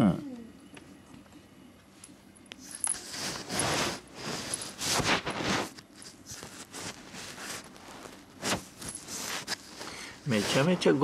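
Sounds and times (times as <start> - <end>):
fur rubbing on microphone: 3.0 - 11.0.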